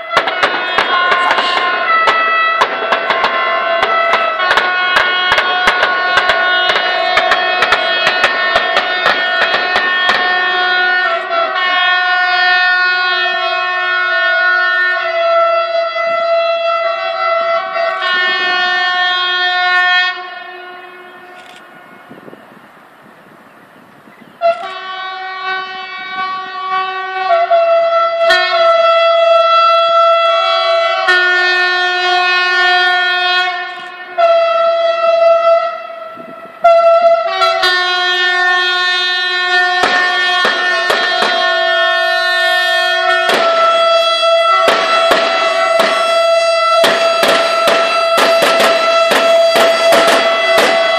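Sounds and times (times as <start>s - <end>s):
train horns blasting: 0.0s - 22.4s, 24.4s - 50.9s
rapid sharp bangs: 0.1s - 10.4s, 39.8s - 41.6s, 43.2s - 43.9s, 44.5s - 50.9s.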